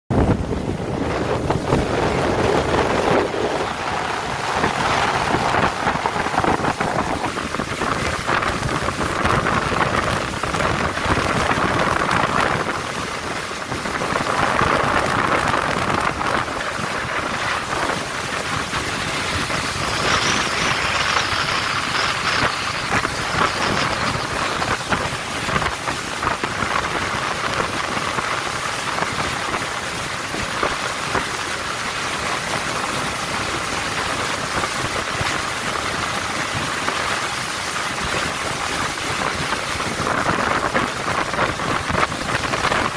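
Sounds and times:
wind rushing: 0.1 - 31.3
motorboat running at speed: 0.1 - 42.9
water spray splashing: 0.4 - 42.9.

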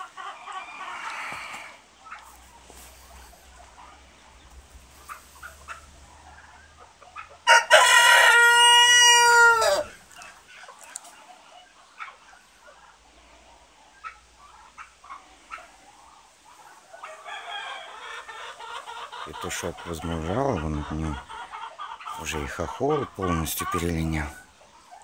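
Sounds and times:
hens clucking: 0.0 - 25.0
rooster crowing: 7.4 - 10.0, 17.0 - 18.2.

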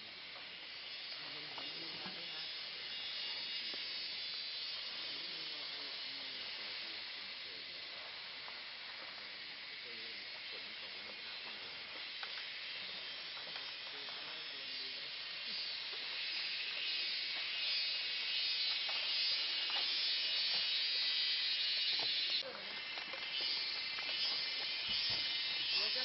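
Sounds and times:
insect chorus buzzing: 0.0 - 26.0.

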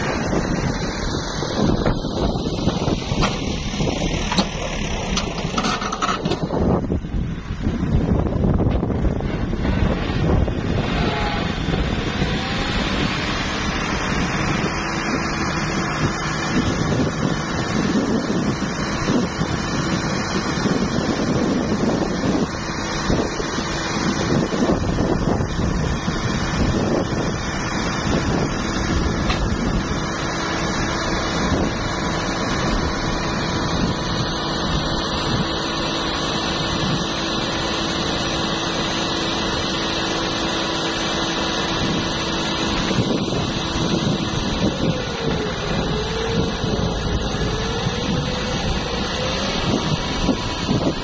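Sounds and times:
hydraulic tipper whine: 0.0 - 51.0
tractor diesel engine running: 0.0 - 51.0.

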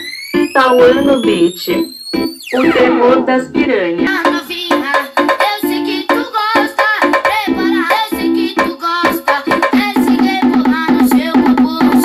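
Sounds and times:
loud music with sung vocal: 2.6 - 12.0.

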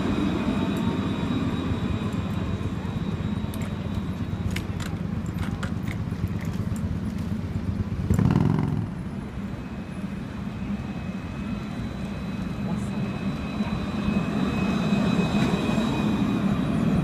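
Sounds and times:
city traffic and trams rumbling: 0.0 - 17.0
passing vehicle rumble: 5.1 - 9.7.

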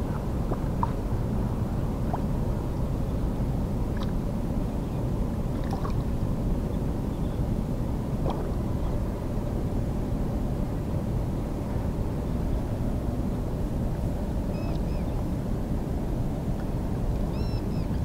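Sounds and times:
wind rumble on microphone: 0.0 - 18.0
faint fish splashes: 5.5 - 6.1.

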